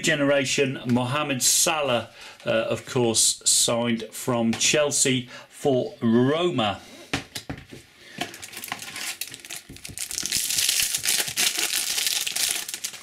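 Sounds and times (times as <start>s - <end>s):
foil wrapper crinkling: 8.2s - 13.0s.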